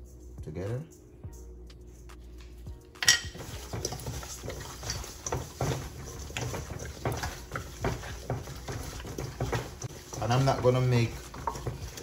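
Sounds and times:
clatter against metal bowl: 3.0 - 12.0
chicken wings squishing in bowl: 3.3 - 12.0.

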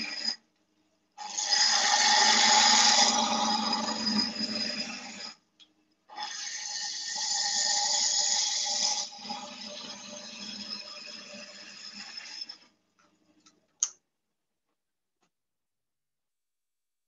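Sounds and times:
wood lathe whine: 0.0 - 0.4, 1.2 - 5.4, 6.1 - 12.8.

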